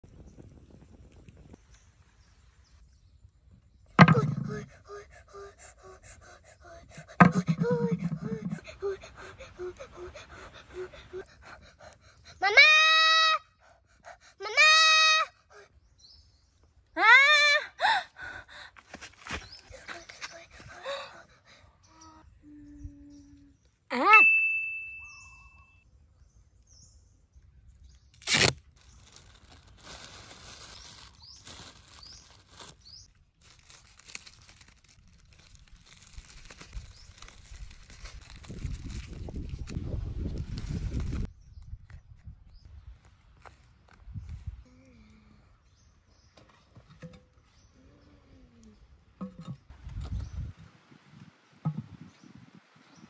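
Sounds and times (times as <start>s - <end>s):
bird chirps: 21.8s - 28.1s
tape tearing off roll: 28.2s - 39.8s
plastic bag rustling: 28.2s - 41.3s.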